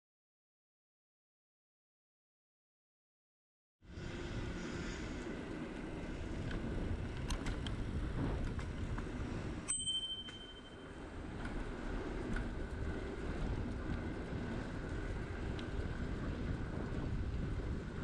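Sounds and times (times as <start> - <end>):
wind and road noise: 3.8 - 18.0
bicycle bell ding: 9.7 - 10.9.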